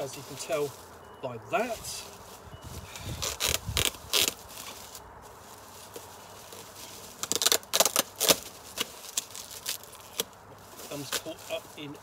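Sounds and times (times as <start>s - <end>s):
plastic wrap crinkling: 1.7s - 12.0s
tape ripping: 3.0s - 5.0s, 5.9s - 11.4s.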